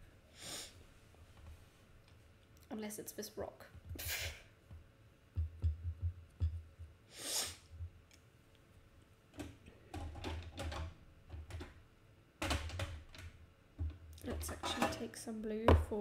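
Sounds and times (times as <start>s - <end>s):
brief hiss: 7.1s - 7.7s.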